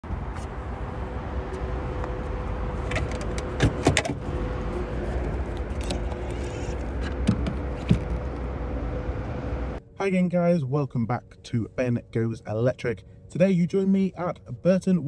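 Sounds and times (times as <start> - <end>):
steady low rumble: 0.0 - 15.0
faint steady hum: 8.2 - 15.0.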